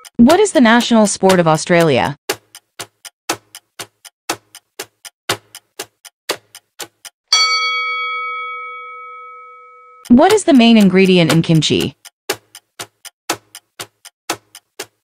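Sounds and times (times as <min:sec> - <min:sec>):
clock timer ticking: 0:00.0 - 0:08.7, 0:10.0 - 0:15.0
bell chime: 0:07.3 - 0:10.0.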